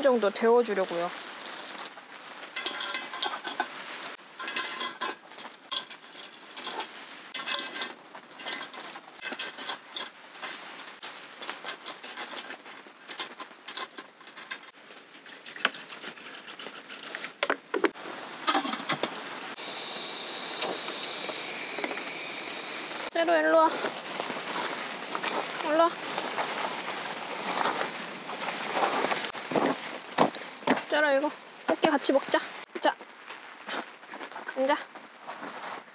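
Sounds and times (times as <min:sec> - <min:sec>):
steady hiss: 0:18.0 - 0:26.4.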